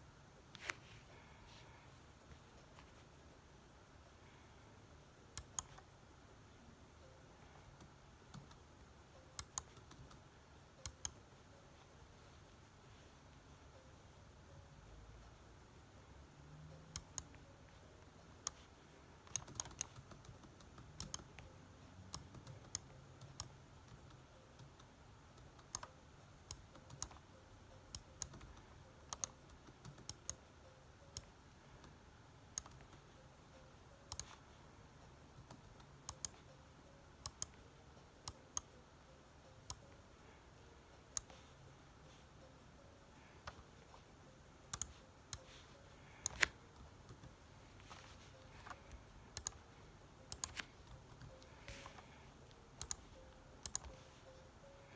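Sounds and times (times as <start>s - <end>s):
faint room hiss: 0.0s - 54.9s
keyboard and mouse clicking: 5.3s - 5.9s, 7.6s - 11.2s, 16.8s - 17.4s, 18.3s - 33.1s, 34.0s - 34.4s, 35.2s - 36.5s, 37.1s - 38.8s, 41.0s - 41.5s, 44.6s - 54.9s.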